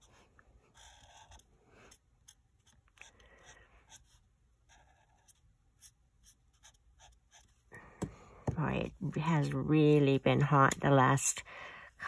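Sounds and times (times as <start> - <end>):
marker scratching on cardstock: 0.0 - 7.6.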